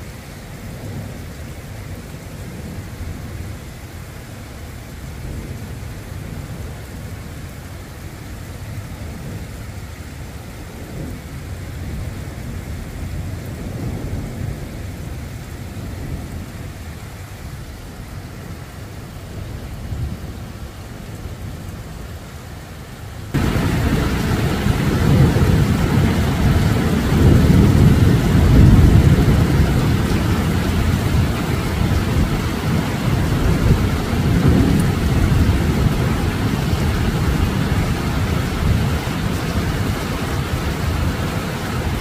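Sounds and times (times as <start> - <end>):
rain hissing: 0.0 - 42.0
thunder rumbling: 8.8 - 22.0, 23.3 - 42.0.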